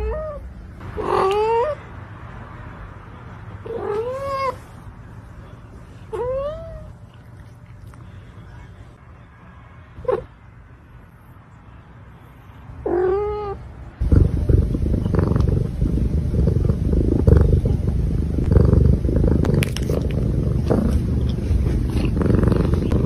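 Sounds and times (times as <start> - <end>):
cat meowing: 3.6 - 4.6, 12.9 - 13.6
cat purring: 14.0 - 23.0.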